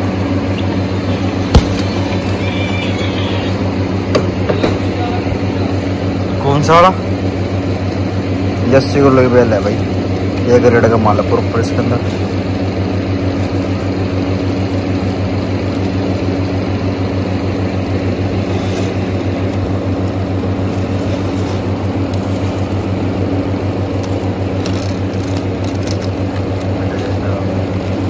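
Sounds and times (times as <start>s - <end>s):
low machine hum: 0.0s - 28.0s
plastic wrap crackling: 12.0s - 28.0s.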